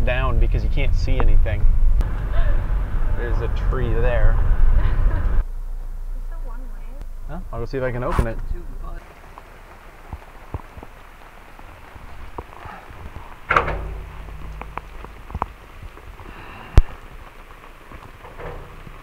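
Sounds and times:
rush with low rumble: 0:00.0 - 0:19.0
rain pattering on car roof: 0:07.7 - 0:19.0.

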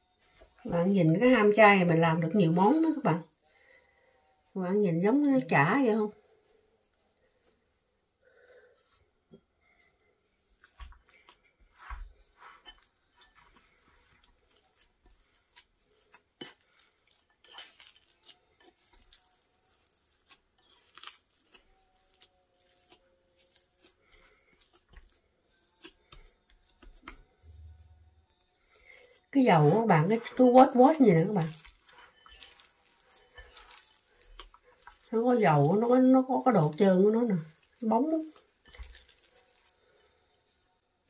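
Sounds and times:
spatula scraping a bowl: 0:11.0 - 0:27.2, 0:29.3 - 0:39.8.

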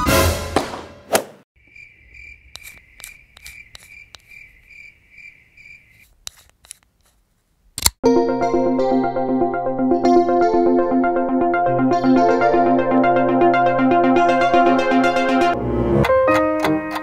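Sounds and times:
cricket chirping: 0:01.6 - 0:06.1
sharp ticks: 0:02.4 - 0:04.5
synthesizer music: 0:08.0 - 0:17.0.

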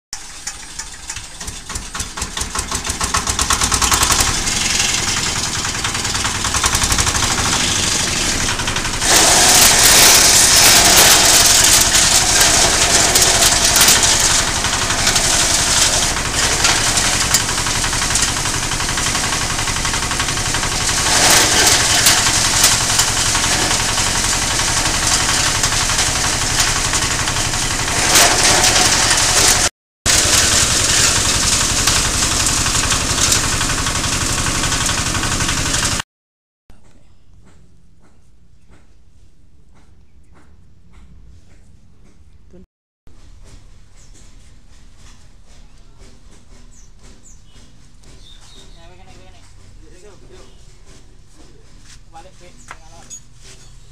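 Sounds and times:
shredder chopping plant material: 0:00.2 - 0:36.0, 0:43.4 - 0:53.0
diesel engine running: 0:00.3 - 0:36.0.

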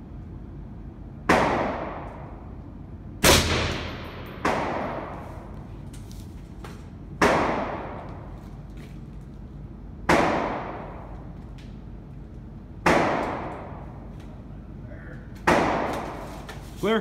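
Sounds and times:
rifle shots echoing: 0:03.2 - 0:05.2.

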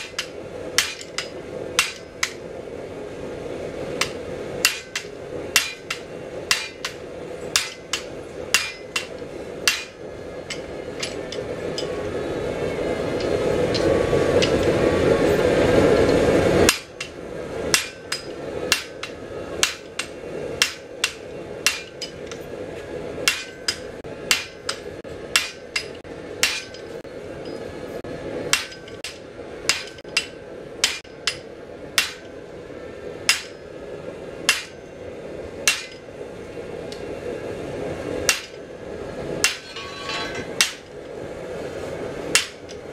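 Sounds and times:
hammer blows on anvil: 0:00.0 - 0:02.4, 0:04.0 - 0:12.0, 0:16.6 - 0:22.4, 0:23.2 - 0:27.6, 0:35.6 - 0:36.0.

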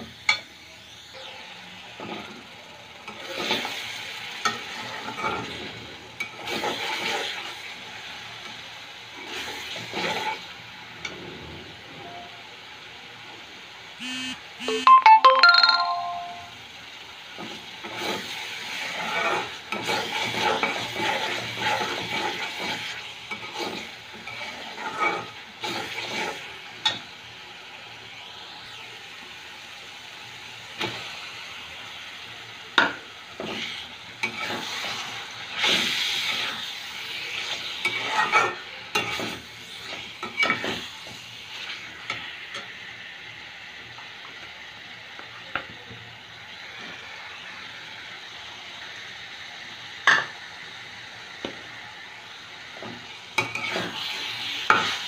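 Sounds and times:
metal spatula scraping pan: 0:04.4 - 0:07.4, 0:17.8 - 0:26.5, 0:37.4 - 0:40.8
paste sizzling: 0:17.4 - 0:27.0, 0:31.2 - 0:42.6, 0:52.1 - 0:55.0.

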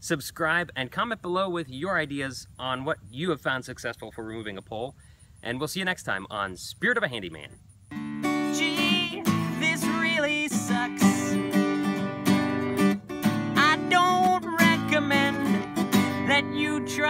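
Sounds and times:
acoustic guitar strumming: 0:07.9 - 0:17.0
man singing: 0:08.2 - 0:11.8, 0:13.4 - 0:17.0.

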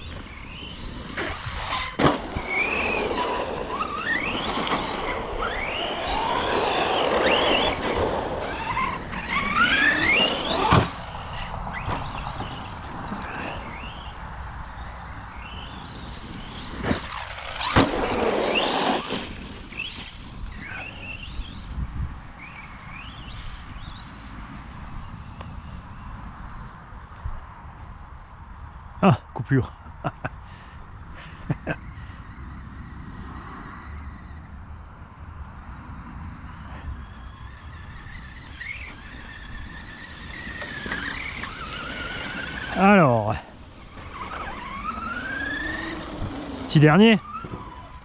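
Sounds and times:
electric motor whining: 0:00.0 - 0:14.2, 0:36.5 - 0:48.0.

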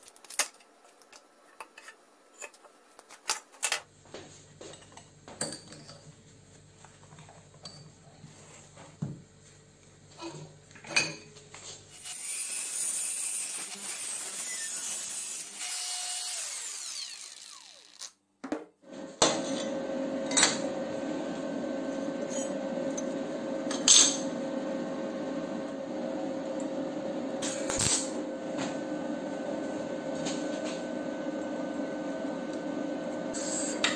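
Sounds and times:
angle grinder cutting steel: 0:11.9 - 0:18.2, 0:22.2 - 0:23.1, 0:33.2 - 0:33.9.

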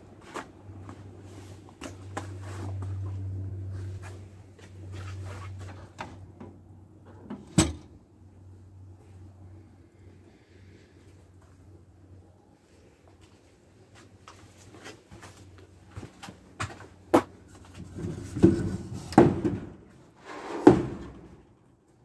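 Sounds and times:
wooden bench knocks and clatter: 0:17.9 - 0:19.8.

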